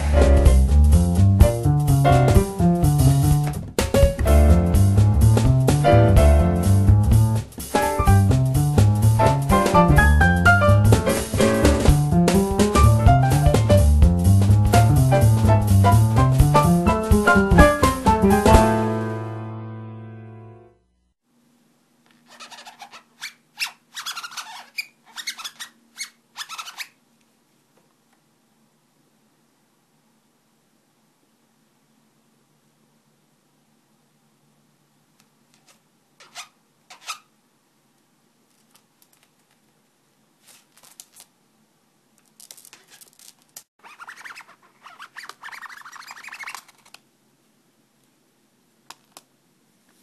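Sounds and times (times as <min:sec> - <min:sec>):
light scratching and rustling: 0:22.1 - 0:27.0, 0:40.4 - 0:41.3, 0:42.2 - 0:47.0
parrot chirping and squawking: 0:22.3 - 0:27.0, 0:36.2 - 0:37.3, 0:43.8 - 0:47.0.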